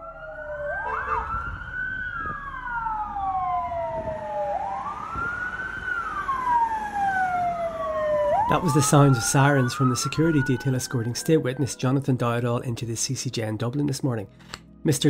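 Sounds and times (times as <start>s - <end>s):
sirens wailing: 0.0s - 12.0s.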